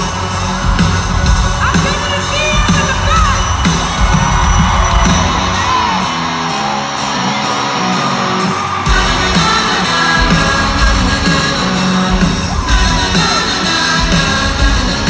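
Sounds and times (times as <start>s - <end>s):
bass and drums: 0.0s - 15.0s
live pop-rock band: 0.0s - 15.0s
woman singing lead: 8.9s - 11.9s.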